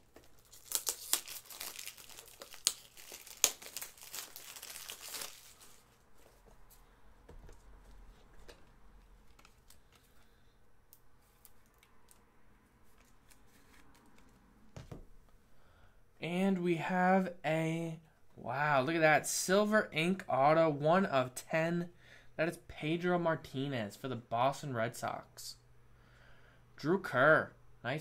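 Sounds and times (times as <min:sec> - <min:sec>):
packaging crinkling and tearing: 0:00.0 - 0:06.0
cards being handled: 0:00.0 - 0:10.3.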